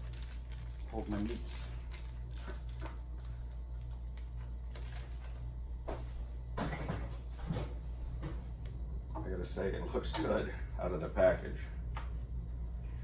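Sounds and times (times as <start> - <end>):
plastic wrapping rustling: 0.0 - 5.6
low steady hum: 0.0 - 13.0.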